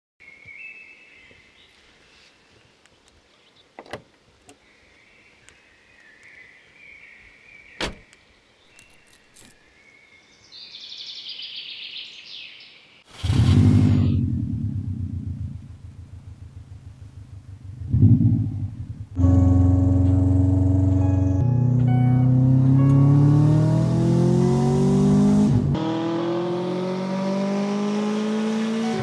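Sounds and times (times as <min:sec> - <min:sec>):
car door shutting: 0:07.8 - 0:08.0
car engine starting: 0:13.1 - 0:29.0.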